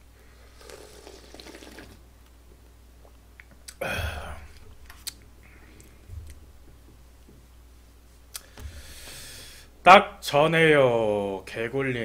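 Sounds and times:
slurping broth from a bowl: 0.4 - 2.0.

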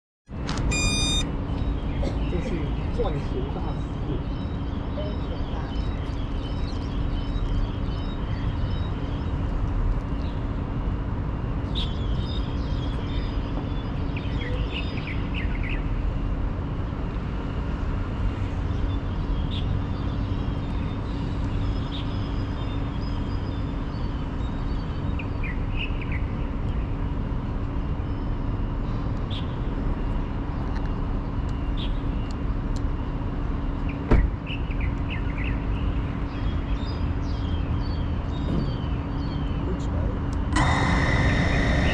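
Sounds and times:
constant hum: 0.3 - 41.9
low outdoor rumble: 0.3 - 41.9
small birds chirping: 0.7 - 10.5.

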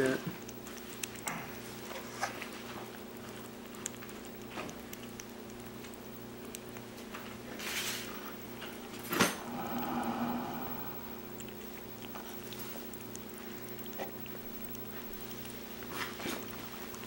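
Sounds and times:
kitten chewing dry kibble: 0.0 - 17.0
paws and bowl clicking on table: 0.2 - 9.4
low hum: 9.1 - 13.9.

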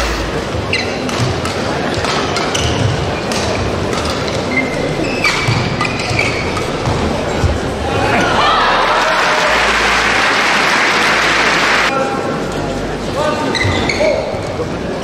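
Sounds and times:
court shoes squeaking: 0.0 - 8.2, 13.4 - 14.6
crowd murmur: 0.0 - 13.6
racket hitting shuttlecock: 0.3 - 4.5.

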